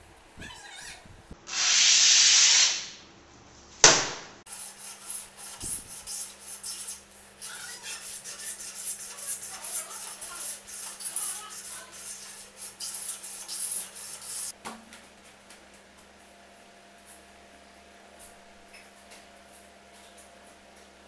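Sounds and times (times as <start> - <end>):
sharp knock: 3.8 - 4.4.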